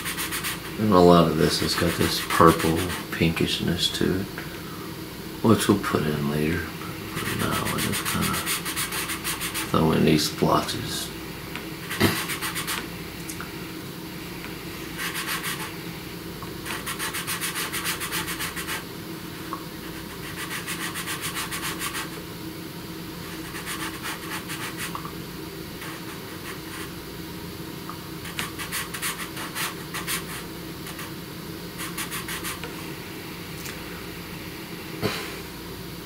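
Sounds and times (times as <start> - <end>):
pencil scratching on paper: 0.0 - 0.7, 1.8 - 3.0, 7.2 - 9.7, 11.9 - 12.8, 15.0 - 15.7, 16.7 - 18.8, 20.0 - 22.2, 23.3 - 25.0, 28.2 - 31.1, 31.8 - 32.7
steady low hum: 0.0 - 36.0.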